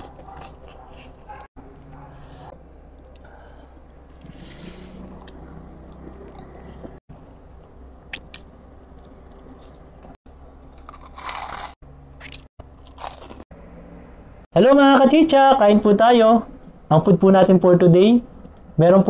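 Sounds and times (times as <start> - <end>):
person chewing crispy food: 0.0 - 2.0, 8.1 - 13.5.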